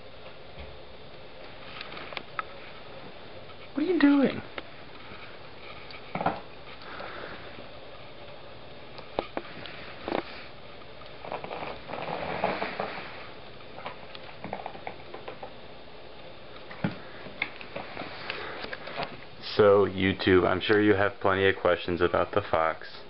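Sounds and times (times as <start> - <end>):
fox snuffling and rustling: 9.2 - 15.0, 16.7 - 19.3.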